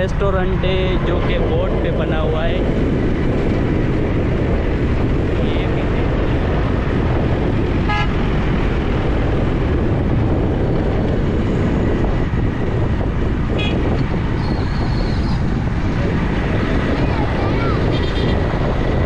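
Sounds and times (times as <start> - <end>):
motorcycle engine rumble: 0.0 - 19.0
wind on microphone: 0.0 - 19.0
horn toots: 7.8 - 8.3, 13.5 - 13.9.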